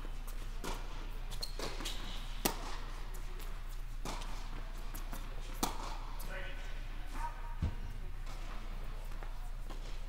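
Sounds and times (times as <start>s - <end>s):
tennis ball struck by racquets: 2.4s - 2.9s, 4.0s - 6.1s.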